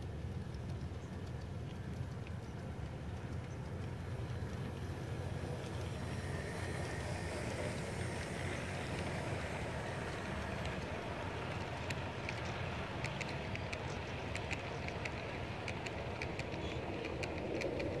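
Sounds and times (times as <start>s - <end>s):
sharp clicks: 0.0s - 5.0s, 10.1s - 18.0s
model train rolling on rails: 0.0s - 18.0s.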